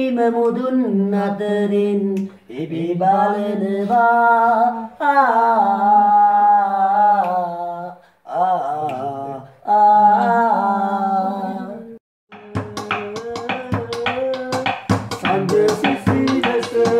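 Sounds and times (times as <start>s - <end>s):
man singing solo: 12.3s - 16.9s.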